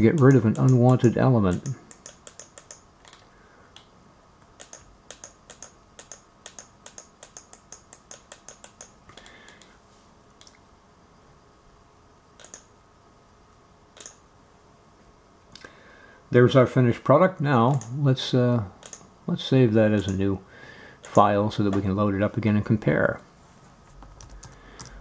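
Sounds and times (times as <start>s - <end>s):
computer mouse button clicking: 0.2s - 3.2s, 4.6s - 9.7s, 12.4s - 12.7s.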